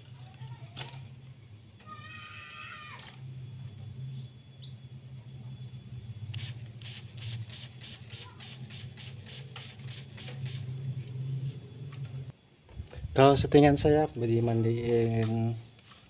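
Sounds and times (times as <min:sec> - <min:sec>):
steady low hum: 0:03.1 - 0:14.6
spray bottle spraying: 0:06.4 - 0:10.8.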